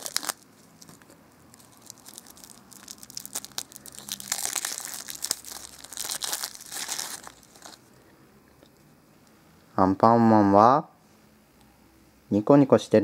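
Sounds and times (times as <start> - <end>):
plastic film crinkling: 0.0 - 7.9.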